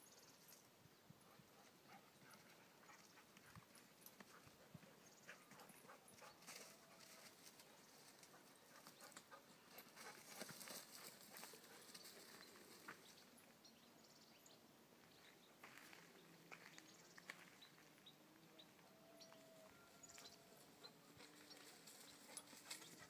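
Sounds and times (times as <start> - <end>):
footsteps crunching on stony track: 15.0 - 18.1.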